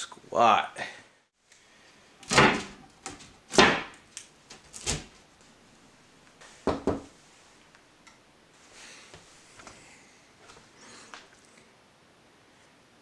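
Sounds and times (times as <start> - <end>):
glass tabletop knocking on wood frame: 6.7 - 7.1.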